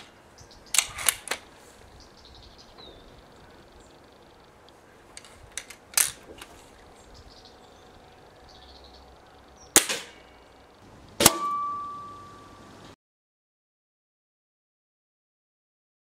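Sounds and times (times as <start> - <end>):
air rifle barrel clicks and snap: 0.7 - 1.5, 5.2 - 6.5
air rifle firing report: 9.7 - 10.3, 11.2 - 11.7
pellet striking target: 9.8 - 10.2, 11.2 - 12.3
ringing tone: 11.3 - 12.9.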